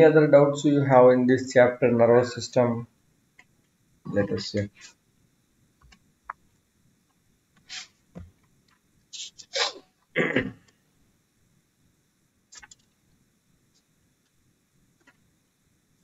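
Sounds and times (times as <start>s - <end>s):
person sneezing: 7.7s - 8.0s, 9.2s - 10.6s.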